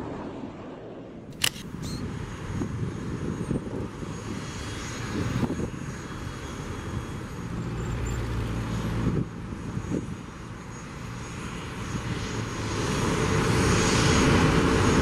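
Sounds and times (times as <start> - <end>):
jet engines rumbling: 0.0 - 15.0.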